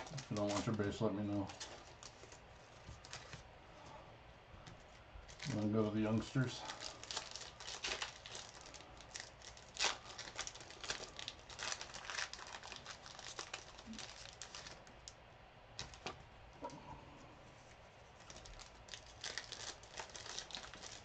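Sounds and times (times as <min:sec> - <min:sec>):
foil wrappers crinkling and tearing: 0:00.0 - 0:03.5, 0:05.2 - 0:15.2, 0:15.8 - 0:16.2, 0:18.2 - 0:21.0.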